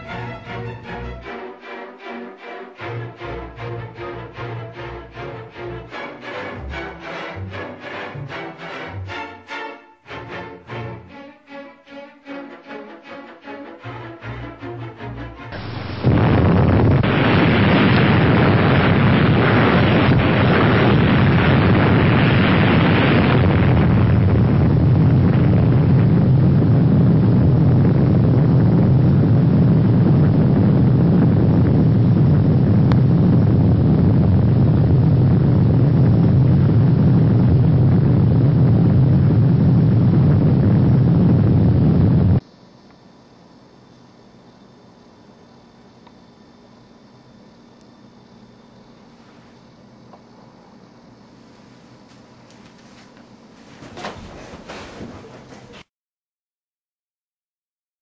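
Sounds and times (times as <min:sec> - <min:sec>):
explosion rumble: 0:15.5 - 0:42.4.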